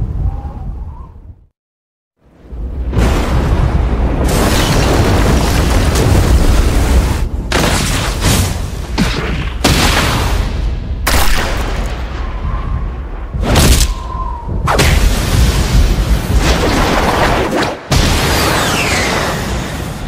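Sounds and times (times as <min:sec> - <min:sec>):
booming impacts and rushes: 0:02.2 - 0:20.0
heavy rumbling blast: 0:02.4 - 0:08.9.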